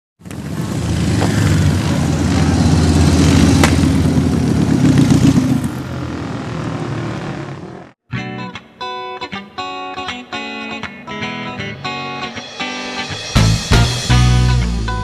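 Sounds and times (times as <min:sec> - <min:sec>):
sharp crack: 0:00.2 - 0:05.7
motorcycle engine running: 0:00.2 - 0:08.0.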